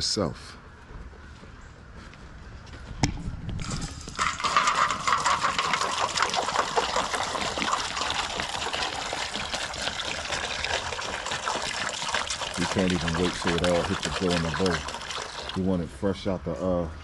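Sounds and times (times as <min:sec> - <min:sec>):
water pouring into bowl: 0:04.2 - 0:15.9.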